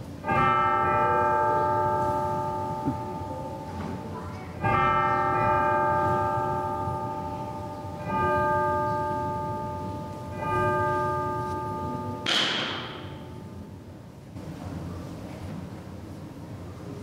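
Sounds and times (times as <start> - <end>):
bell ringing: 4.7 - 13.7.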